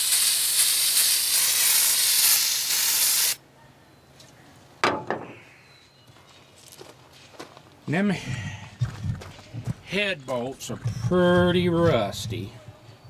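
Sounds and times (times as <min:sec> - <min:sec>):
aerosol spray hissing: 0:00.0 - 0:03.4.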